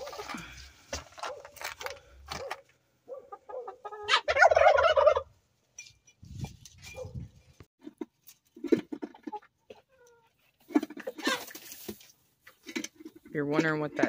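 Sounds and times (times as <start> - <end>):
turkey gobbling: 3.1 - 5.4.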